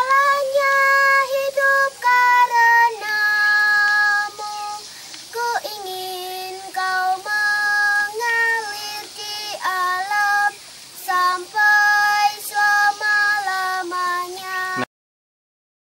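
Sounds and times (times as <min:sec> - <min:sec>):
girl singing slow song: 0:00.0 - 0:14.9.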